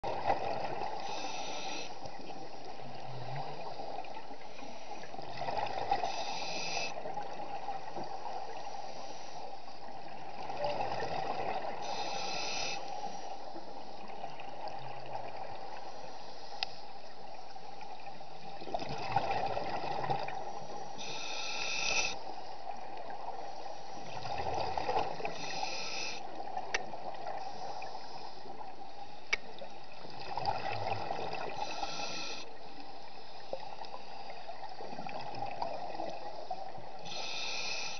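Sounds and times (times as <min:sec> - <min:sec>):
underwater hum: 0:00.0 - 0:37.9
regulator hissing inhale: 0:01.0 - 0:02.1, 0:06.0 - 0:07.0, 0:08.5 - 0:09.8, 0:11.8 - 0:13.6, 0:20.8 - 0:22.4, 0:25.2 - 0:26.3, 0:27.4 - 0:29.3, 0:31.5 - 0:34.4, 0:36.4 - 0:37.9.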